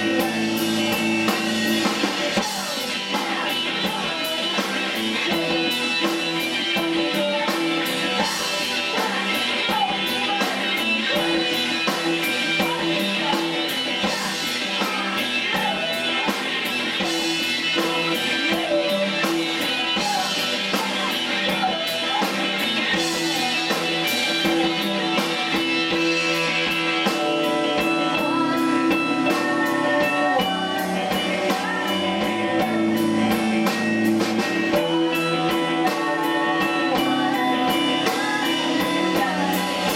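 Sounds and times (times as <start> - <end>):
rock band playing: 0.0 - 39.9
woman singing into a microphone: 2.4 - 11.5, 12.1 - 17.2, 27.6 - 33.5, 35.2 - 39.9.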